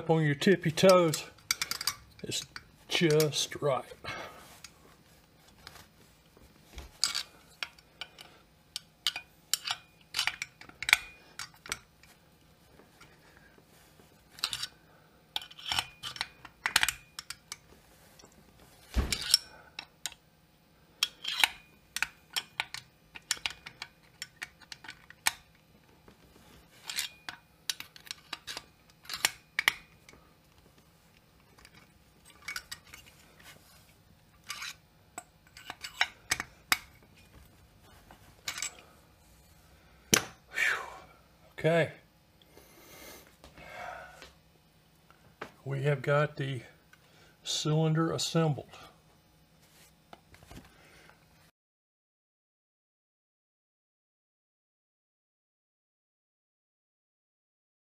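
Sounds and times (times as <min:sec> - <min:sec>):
metal clicks of screwdriver and screws: 0:21.0 - 0:25.5.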